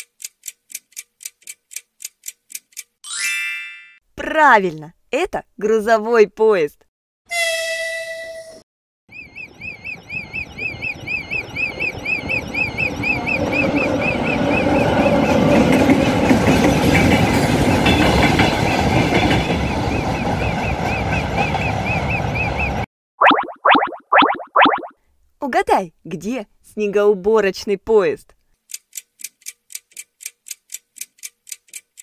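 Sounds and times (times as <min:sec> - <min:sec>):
level-crossing alarm warbling: 0:09.1 - 0:14.7, 0:23.2 - 0:24.9
freight train rumble and wheel clatter: 0:10.2 - 0:22.8.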